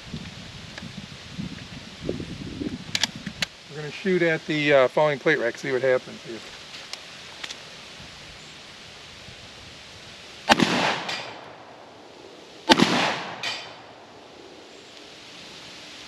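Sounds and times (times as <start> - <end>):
shotgun shots: 10.5 - 11.6, 12.7 - 14.0.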